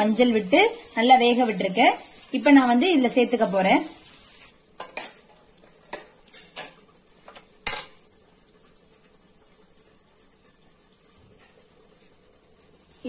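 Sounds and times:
faint sizzle: 0.0 - 13.0
steel ladle scraping a pan: 4.8 - 7.9.

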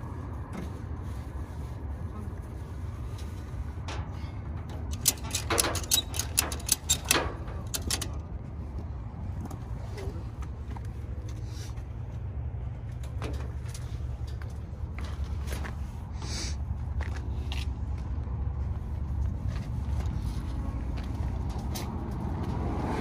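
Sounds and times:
steady low rumble: 0.0 - 23.0
ratchet strap clicks: 4.9 - 8.1.

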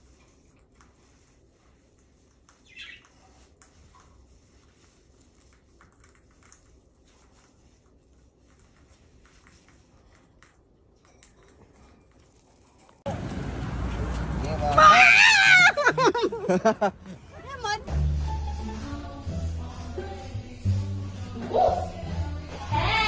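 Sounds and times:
parrot chirp: 2.6 - 3.3.

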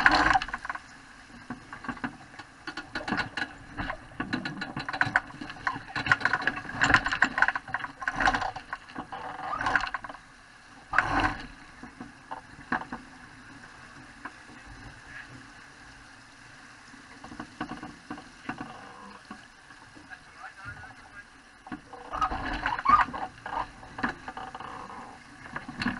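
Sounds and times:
knocks and clicks from boat: 0.0 - 15.5, 17.1 - 25.9
water slapping and rushing along hull: 0.0 - 25.9.

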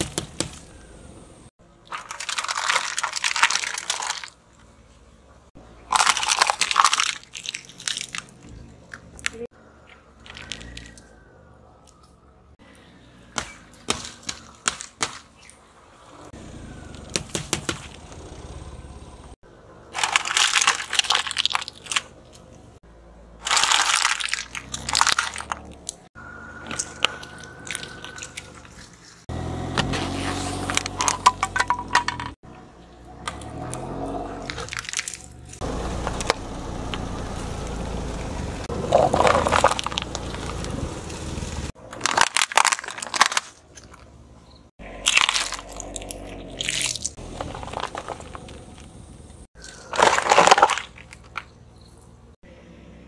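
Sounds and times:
car tyres crushing plastic objects: 1.8 - 4.6, 5.8 - 11.1, 13.3 - 15.6, 16.9 - 18.3, 19.8 - 22.7, 23.4 - 32.4, 33.2 - 37.2, 38.7 - 40.8, 41.7 - 44.2, 44.8 - 52.2.

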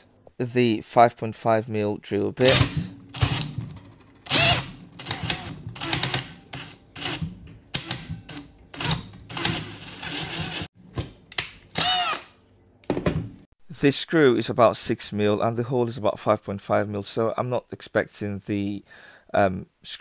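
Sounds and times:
drill boring through steel: 2.5 - 3.5, 4.2 - 7.2, 7.8 - 10.7, 11.8 - 12.2
drill bit squeaking: 2.5 - 3.6, 4.2 - 10.7, 11.8 - 12.2.

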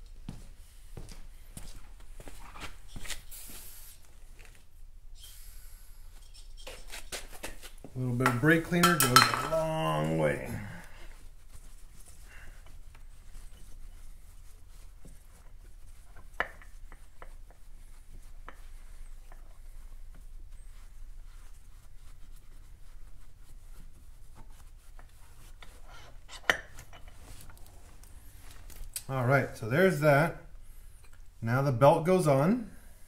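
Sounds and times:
cloth wiping metal pulley: 3.3 - 28.7.

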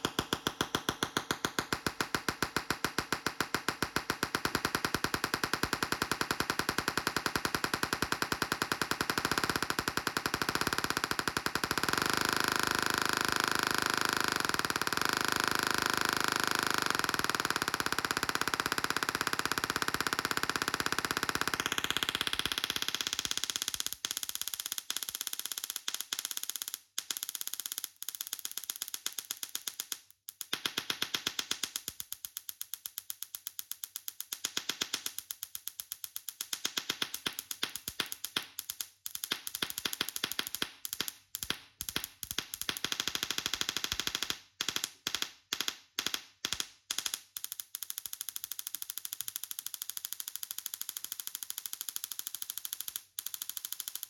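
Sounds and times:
tesla coil electric buzz: 4.9 - 20.0.

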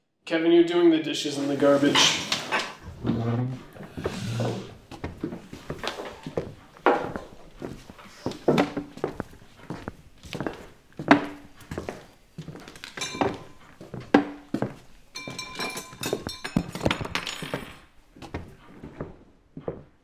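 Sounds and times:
footsteps: 2.7 - 20.0
dishes and cutlery clinking: 12.5 - 14.4, 15.1 - 17.9.

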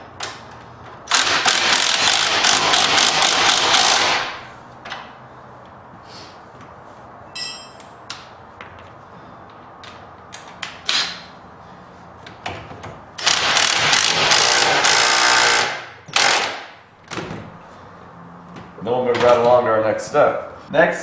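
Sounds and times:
impact driver hammering: 1.1 - 4.4, 13.2 - 16.8
hand tools clinking on metal: 7.3 - 7.9.

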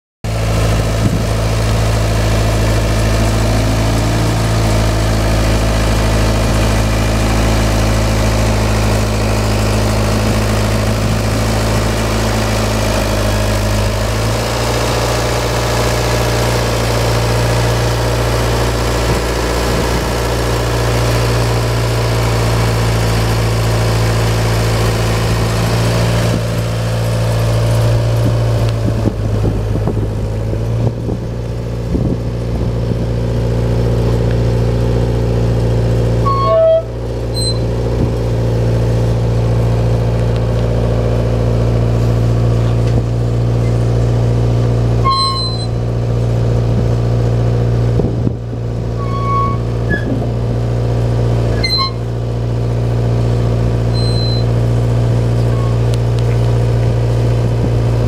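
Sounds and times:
diesel engine running: 0.2 - 58.0.

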